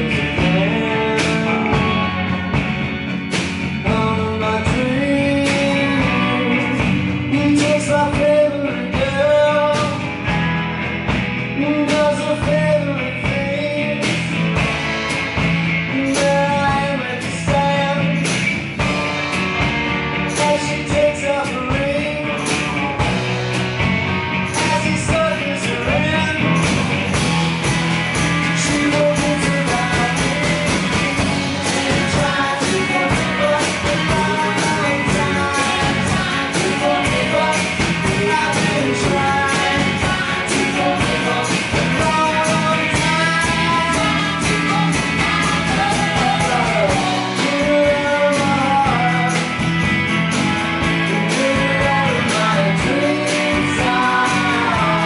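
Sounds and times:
electric guitar: 0.0s - 55.0s
keyboard: 0.0s - 55.0s
lead vocal singing: 0.0s - 55.0s
steady drum beat: 0.0s - 55.0s.

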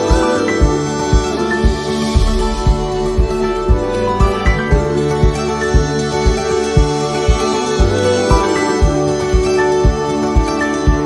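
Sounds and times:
music with low thumping beat: 0.6s - 11.0s
sustained held notes: 1.3s - 7.8s.

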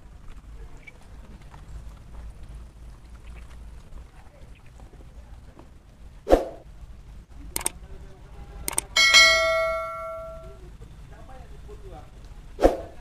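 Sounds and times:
mouse clicks: 8.7s - 8.9s
notification bell ringing: 8.9s - 10.6s.

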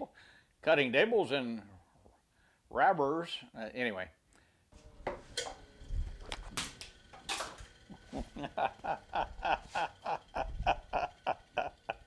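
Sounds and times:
man laughing: 7.9s - 12.0s.

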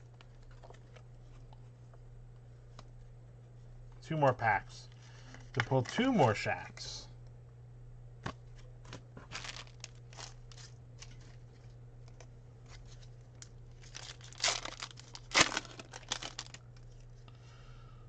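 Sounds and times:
foil packs tearing and crinkling: 9.2s - 11.3s, 13.4s - 16.6s.

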